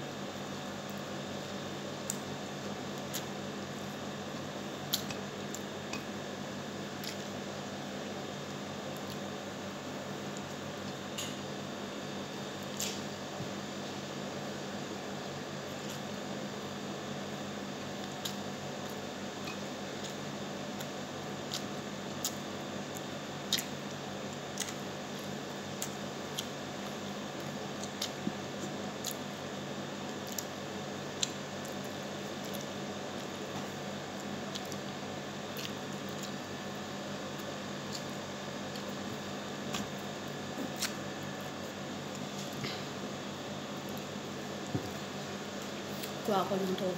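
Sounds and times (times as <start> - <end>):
steady low hum: 0.0 - 46.9
chewing clicks: 4.9 - 6.1, 7.0 - 7.3, 20.8 - 23.7, 24.3 - 29.2, 34.2 - 34.8, 35.5 - 36.4.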